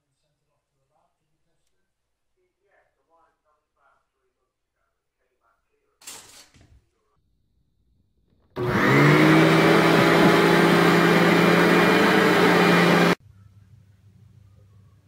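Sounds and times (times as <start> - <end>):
vacuum cleaner motor whine: 8.6 - 13.2.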